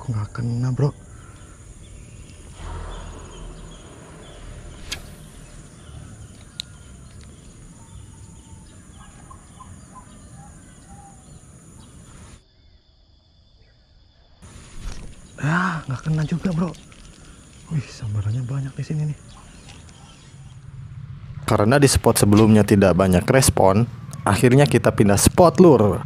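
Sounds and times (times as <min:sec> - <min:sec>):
birds chirping: 0:00.0 - 0:12.9, 0:13.5 - 0:26.0
low steady rumble: 0:01.0 - 0:11.7, 0:17.2 - 0:26.0
sharp click: 0:04.8 - 0:05.2.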